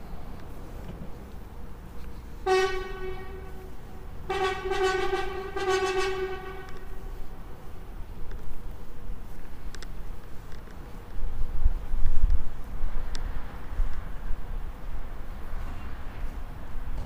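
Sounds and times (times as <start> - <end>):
horn blasts: 2.4 - 7.5.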